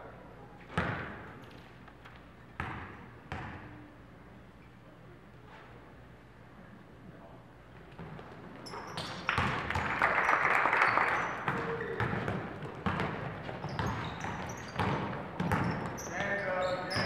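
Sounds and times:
basketball bouncing on court: 0.7 - 1.3, 2.6 - 3.8, 7.9 - 9.9, 11.2 - 17.0
shoe squeaks and knocks: 8.6 - 9.3, 13.5 - 17.0.

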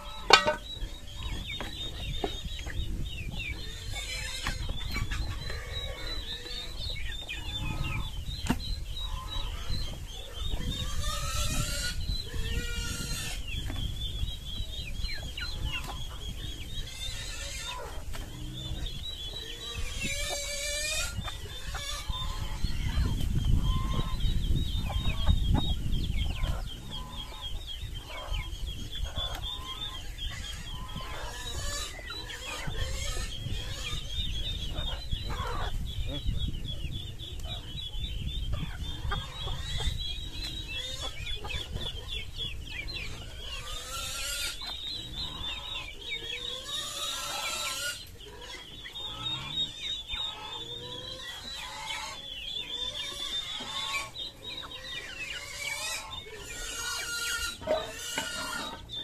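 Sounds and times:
chickens clucking: 0.0 - 59.0
chicken squawking: 16.8 - 18.0, 19.5 - 25.4, 26.4 - 35.8, 45.4 - 58.9.

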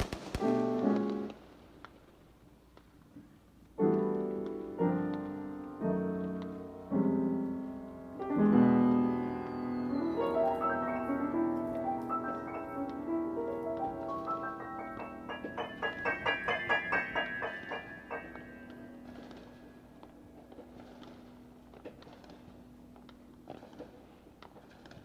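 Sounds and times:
piano notes climbing: 0.4 - 1.4, 3.7 - 23.5
piano chords ringing: 0.4 - 1.5, 3.8 - 23.5.

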